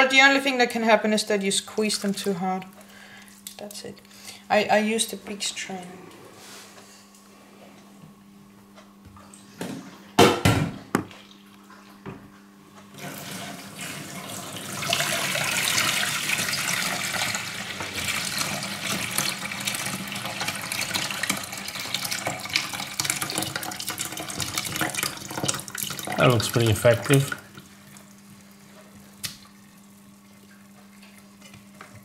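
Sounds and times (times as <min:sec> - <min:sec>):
water pouring into metal pot: 0:13.0 - 0:27.4.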